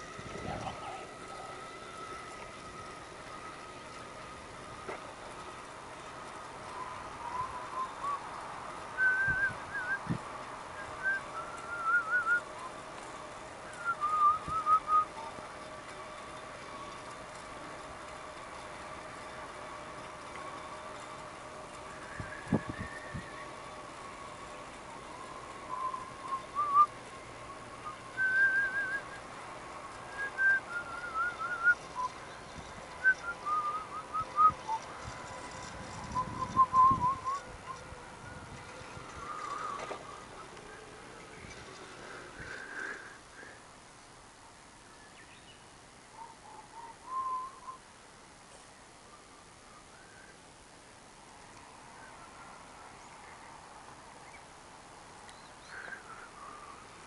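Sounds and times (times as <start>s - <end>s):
warbling whistling: 6.6s - 12.9s, 13.6s - 15.4s, 21.9s - 23.6s, 25.0s - 29.4s, 30.1s - 32.3s, 32.9s - 40.8s, 46.2s - 47.9s
person whistling a tune: 9.0s - 10.1s, 10.8s - 12.5s, 13.8s - 15.1s, 25.7s - 26.9s, 27.8s - 29.2s, 30.1s - 32.1s, 33.0s - 34.9s, 36.2s - 37.4s, 47.0s - 47.8s.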